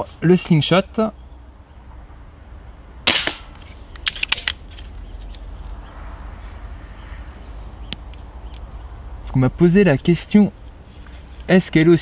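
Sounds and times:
suppressed air rifle shot: 3.1s - 3.6s.

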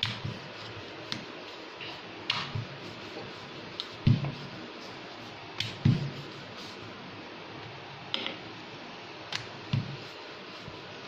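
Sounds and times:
rolling pin clicking on board: 0.0s - 0.3s, 2.3s - 2.6s
rolling pin thumping on board: 4.0s - 4.4s, 5.6s - 6.1s, 9.7s - 10.0s.

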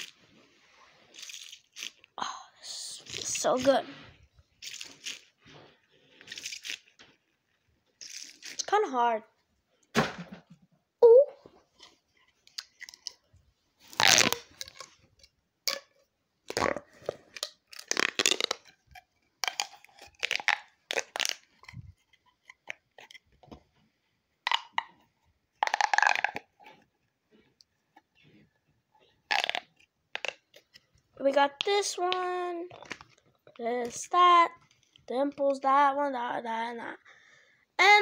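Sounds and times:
fidget toys crunching and rustling: 0.0s - 8.9s, 11.7s - 15.9s, 16.5s - 23.8s, 24.5s - 28.4s, 29.2s - 30.9s.

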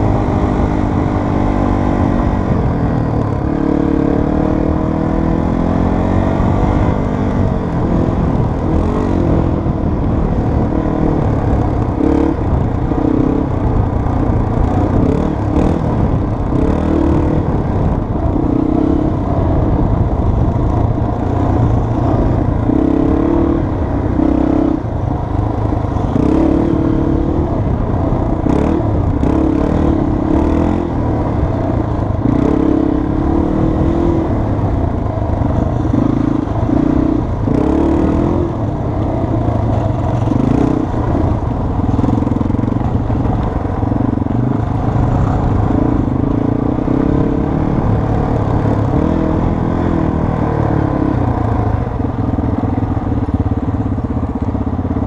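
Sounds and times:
wind rumble: 0.0s - 55.0s
dirt bike engine revving: 3.2s - 13.8s, 28.4s - 34.4s, 35.6s - 38.6s.

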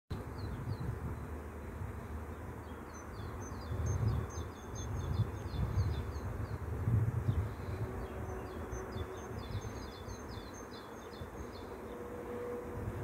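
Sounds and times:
bird chirping: 2.3s - 6.6s, 8.0s - 12.0s.

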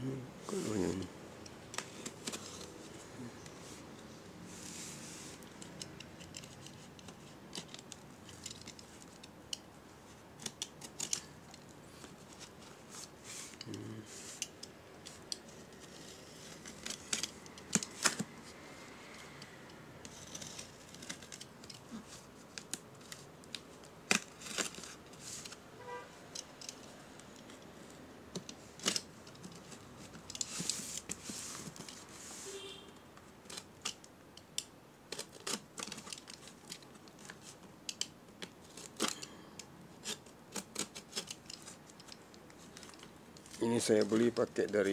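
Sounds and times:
knife cutting tape and cardboard: 40.0s - 42.1s.

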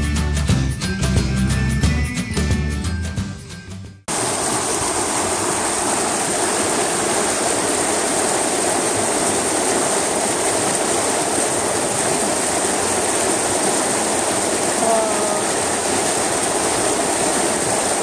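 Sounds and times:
water rushing down a channel: 4.1s - 18.0s.

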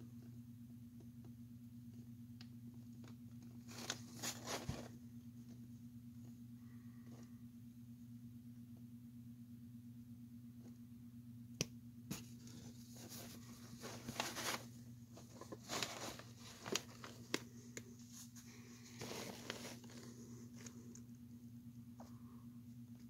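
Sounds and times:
faint low hum: 0.0s - 23.0s
rustling and scraping: 3.0s - 5.6s, 12.1s - 21.0s.

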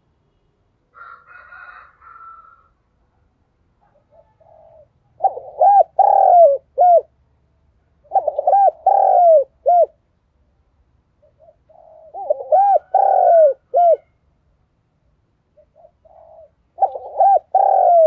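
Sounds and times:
dove cooing: 3.8s - 7.1s, 8.0s - 10.0s, 11.2s - 14.2s, 15.5s - 18.0s.

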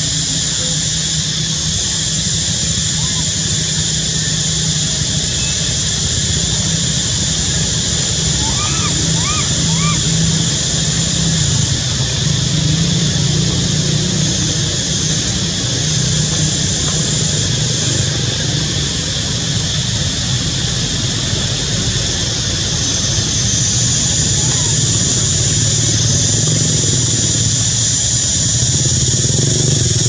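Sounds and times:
high hiss: 0.0s - 30.0s
low engine-like hum: 0.0s - 30.0s.

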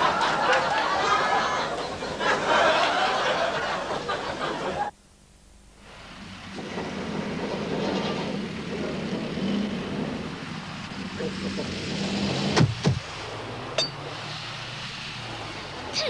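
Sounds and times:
people talking and laughing: 0.0s - 4.9s
street traffic: 5.9s - 16.0s
car engine humming: 6.2s - 16.0s.

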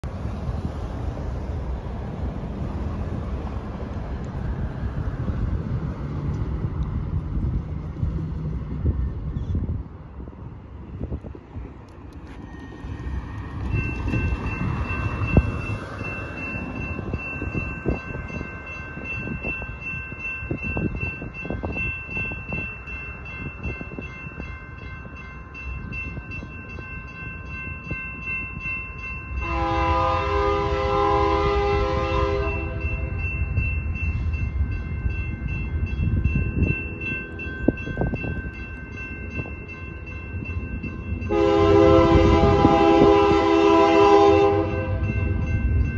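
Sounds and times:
railroad crossing bells ringing: 0.0s - 45.9s
locomotive horn blast: 29.4s - 33.1s, 41.3s - 45.2s.

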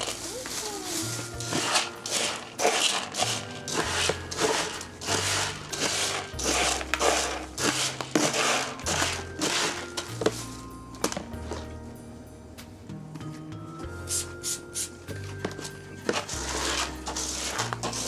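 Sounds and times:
shaker rustle: 0.0s - 10.8s
background music with steady beat: 0.0s - 18.0s.

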